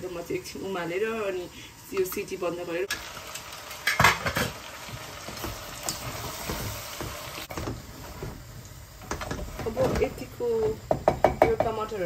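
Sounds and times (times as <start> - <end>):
food sizzling in a frying pan: 0.0 - 12.0
utensil clattering in pan: 3.8 - 4.6.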